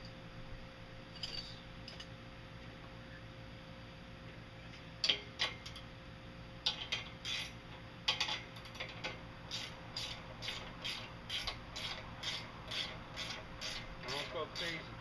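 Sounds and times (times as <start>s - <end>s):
ratchet wrench clicking: 6.7s - 8.4s, 9.5s - 14.8s.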